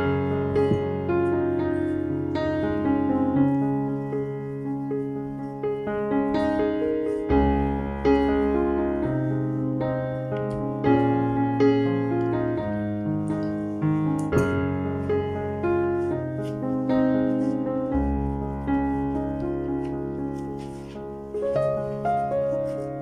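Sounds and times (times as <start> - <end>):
calm piano music: 0.0 - 23.0.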